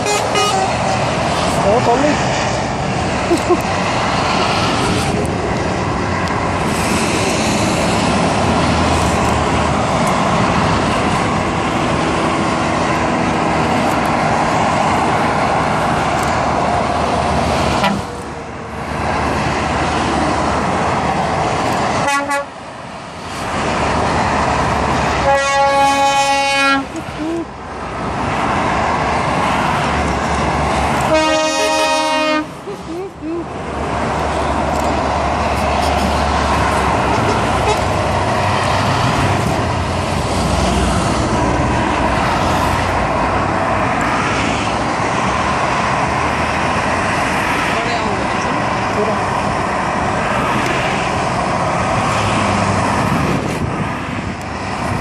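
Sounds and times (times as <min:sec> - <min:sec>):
truck horn blasts: 0:00.0 - 0:01.0, 0:17.8 - 0:18.1, 0:22.0 - 0:22.6, 0:25.2 - 0:27.0, 0:31.0 - 0:32.6, 0:37.1 - 0:38.0
heavy trucks passing: 0:00.0 - 0:55.0.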